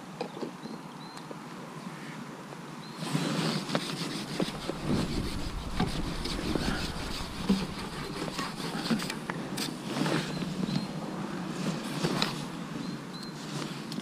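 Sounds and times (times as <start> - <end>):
steady rain hiss: 3.1 - 13.9
wind buffeting microphone: 3.9 - 12.9.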